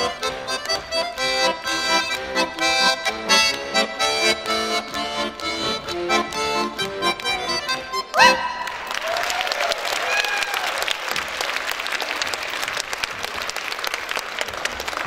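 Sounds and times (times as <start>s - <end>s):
accordion folk song: 0.0s - 8.6s
audience cheering: 8.1s - 12.6s
audience applauding: 8.1s - 15.0s.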